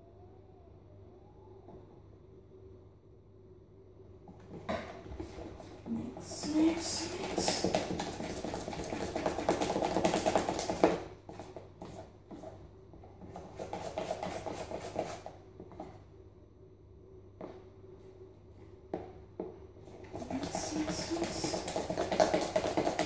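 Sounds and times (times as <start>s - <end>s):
batter stirred in plastic jug: 4.6s - 16.0s, 19.8s - 23.0s.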